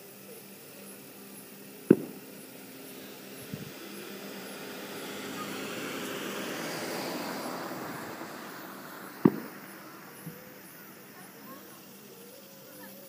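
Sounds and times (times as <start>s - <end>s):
sharp bang: 1.9s - 2.3s, 9.2s - 9.7s
car passing by: 3.7s - 11.3s.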